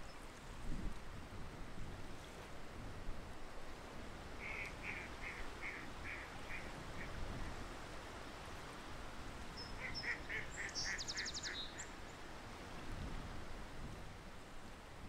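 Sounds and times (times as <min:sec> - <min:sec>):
waterfowl calling: 0:04.4 - 0:07.2, 0:09.6 - 0:11.9.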